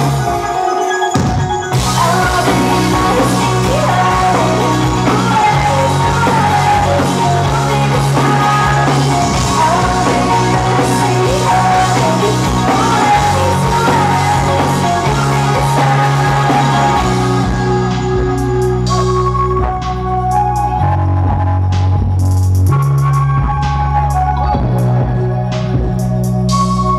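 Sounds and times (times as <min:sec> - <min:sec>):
live rock band: 0:00.0 - 0:26.9
woman singing: 0:01.7 - 0:19.0.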